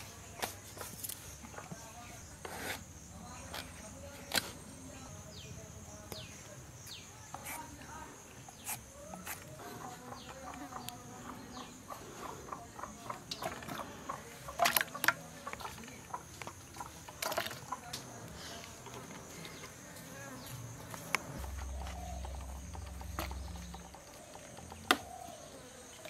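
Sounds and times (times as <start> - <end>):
high insect drone: 0.0 - 26.0
blade scraping gourd: 2.2 - 2.9, 20.7 - 25.4.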